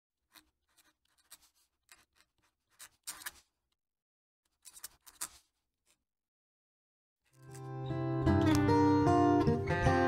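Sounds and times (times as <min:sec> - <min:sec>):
pen nib scratching paper: 0:00.3 - 0:03.5, 0:04.5 - 0:05.6.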